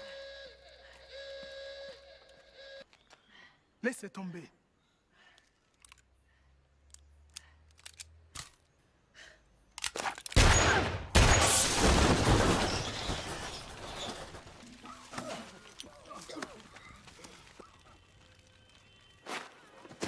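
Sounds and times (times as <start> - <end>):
crashing debris and crackle: 10.4 - 19.2.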